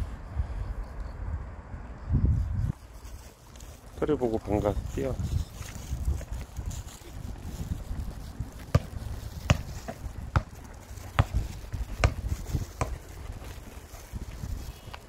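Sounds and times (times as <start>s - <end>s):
soccer ball bouncing on paving: 8.4s - 15.0s.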